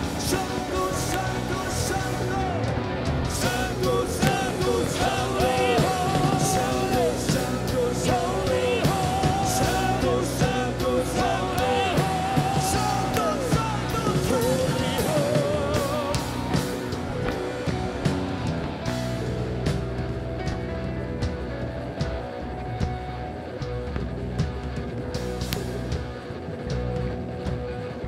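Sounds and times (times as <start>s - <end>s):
voices singing: 0.0s - 18.0s
drums and cymbals: 0.0s - 28.0s
rock band playing: 0.0s - 28.0s.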